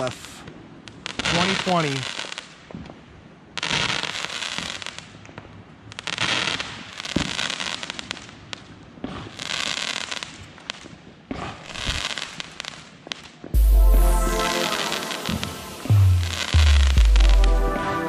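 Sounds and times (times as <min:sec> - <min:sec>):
fireworks crackling: 0:00.0 - 0:03.0, 0:03.6 - 0:18.0
firework bang: 0:13.6 - 0:18.0.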